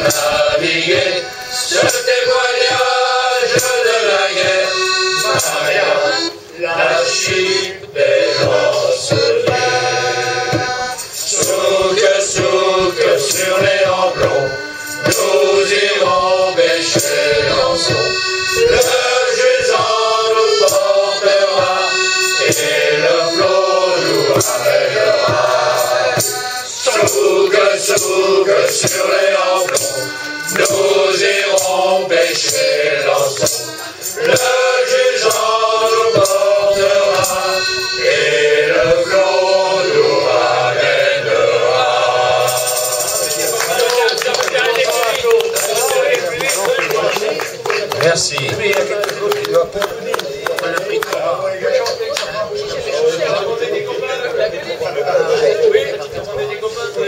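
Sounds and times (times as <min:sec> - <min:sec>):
men's choir singing: 0:00.0 - 0:57.0.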